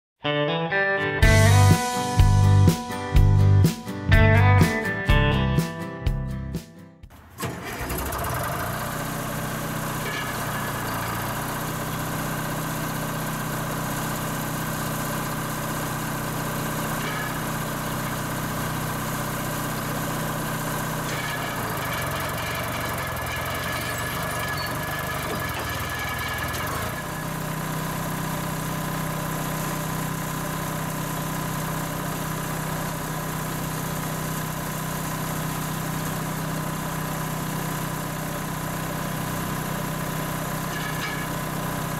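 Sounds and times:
crane engine running: 0:07.2 - 0:41.9.

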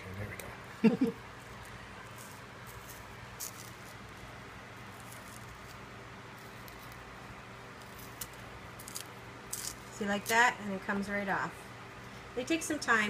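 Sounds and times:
steady low hum: 0:00.0 - 0:13.0
banana peel tearing: 0:07.8 - 0:10.4.

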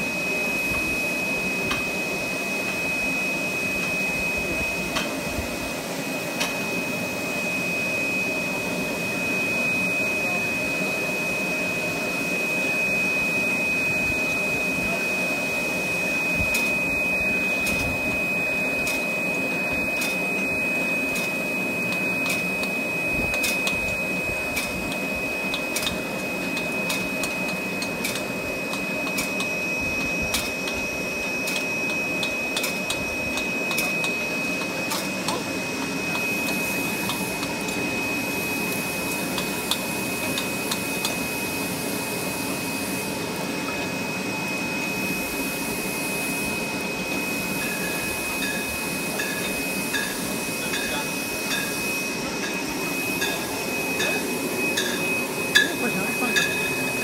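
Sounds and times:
machine whirring with high whine: 0:00.0 - 0:57.0
glass bottles clinking: 0:54.8 - 0:56.8.

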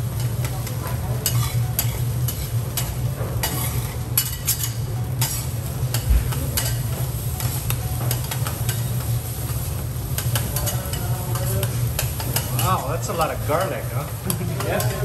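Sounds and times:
frying sizzle: 0:00.0 - 0:15.0
metal spatulas scraping griddle: 0:01.2 - 0:05.5.

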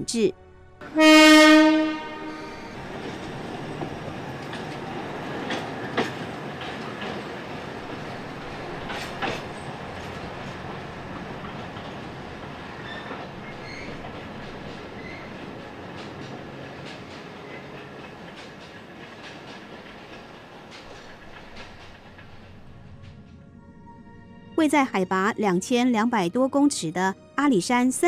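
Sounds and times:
train rumbling past: 0:00.7 - 0:25.9
wheels clicking over rail joints: 0:02.9 - 0:23.4
wheels squealing: 0:07.1 - 0:23.3.

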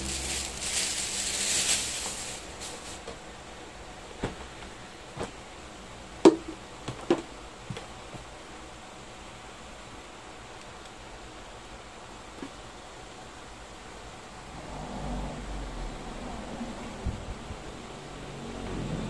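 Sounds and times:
cloth rustling: 0:00.0 - 0:03.2.

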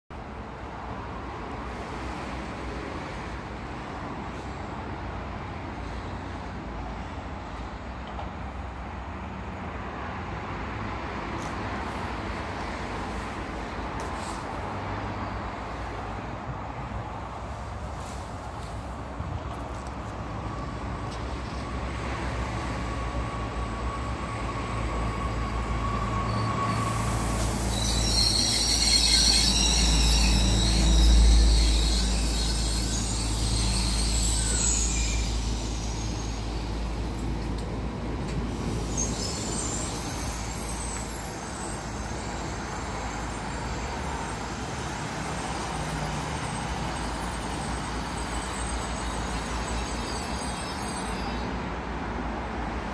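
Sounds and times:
railcar running into station: 0:00.1 - 0:52.9
train standing with steady hum: 0:00.1 - 0:52.9
wheels and brakes squealing: 0:11.8 - 0:52.9.

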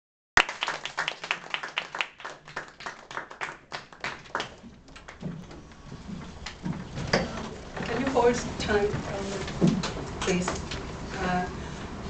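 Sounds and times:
audience clapping: 0:00.4 - 0:05.6.

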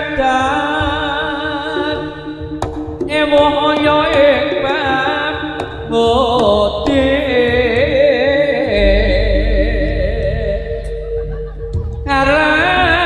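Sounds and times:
steady drum beats: 0:00.0 - 0:13.0
ornamented lead melody: 0:00.4 - 0:13.0
gamelan ensemble playing: 0:08.8 - 0:13.0.

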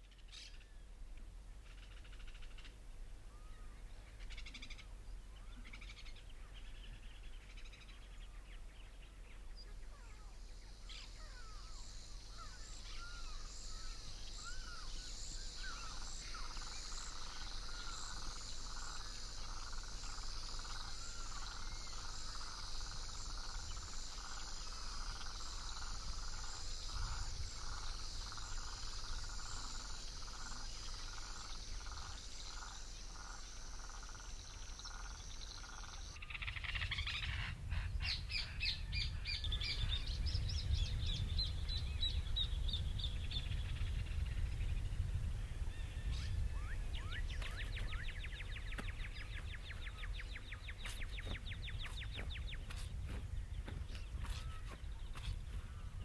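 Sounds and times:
pulsing frog chorus: 0:10.0 - 0:40.1
high insect trill: 0:10.2 - 0:37.5.

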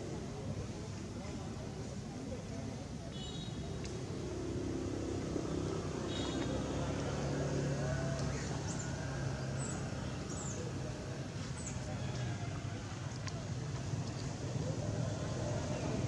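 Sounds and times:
low engine hum: 0:03.8 - 0:16.0.

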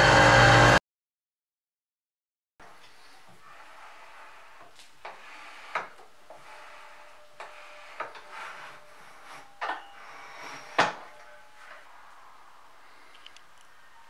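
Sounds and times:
metal slides rubbing: 0:02.8 - 0:13.3.

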